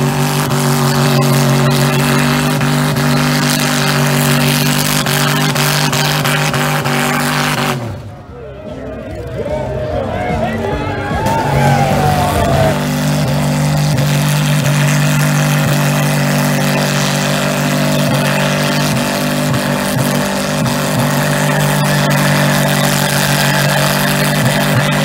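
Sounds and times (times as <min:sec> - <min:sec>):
wheels spinning in dirt: 0:00.0 - 0:08.2, 0:08.9 - 0:25.0
engine at high revs: 0:00.0 - 0:08.3, 0:09.0 - 0:25.0.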